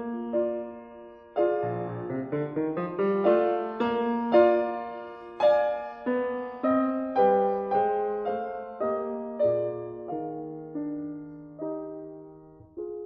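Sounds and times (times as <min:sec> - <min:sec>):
solo piano music: 0:00.0 - 0:13.0.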